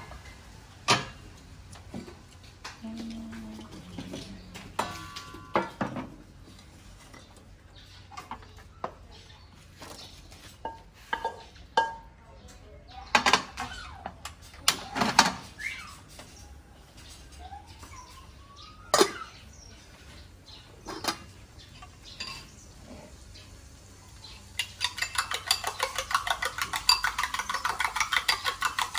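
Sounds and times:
metal cookware clinking: 0:10.6 - 0:12.1, 0:20.9 - 0:22.6, 0:24.6 - 0:28.9.

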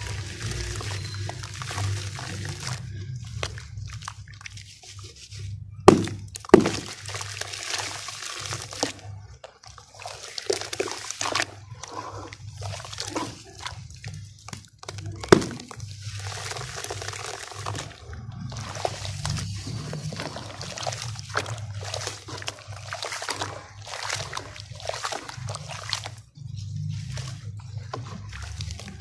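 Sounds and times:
water sloshing and dripping: 0:00.0 - 0:29.0
wet mud squelching: 0:00.0 - 0:29.0.

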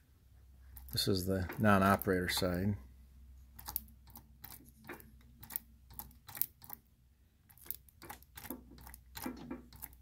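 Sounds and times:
machine part clicking and knocking: 0:07.5 - 0:10.0.

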